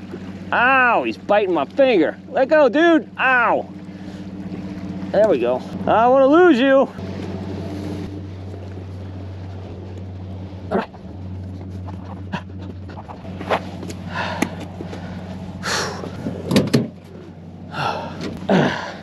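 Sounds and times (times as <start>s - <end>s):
low hum: 0.0s - 19.0s
man breathing hard: 14.0s - 16.2s, 17.7s - 19.0s.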